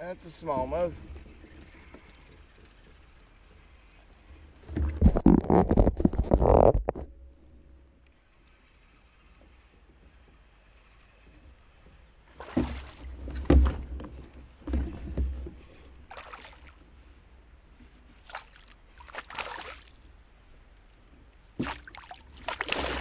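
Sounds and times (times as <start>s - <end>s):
water splashing against kayak: 12.3s - 16.8s, 18.1s - 20.1s, 21.6s - 23.0s.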